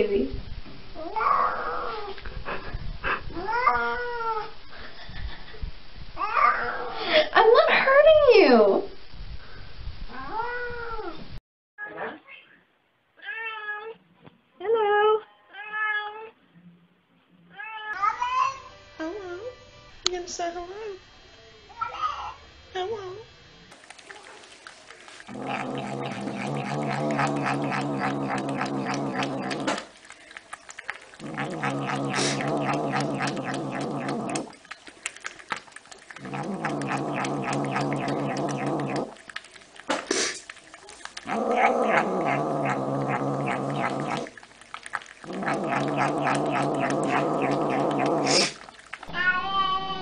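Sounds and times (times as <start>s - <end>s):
cat lapping milk: 23.8s - 49.1s
cat making low drawn-out calls: 25.3s - 29.9s.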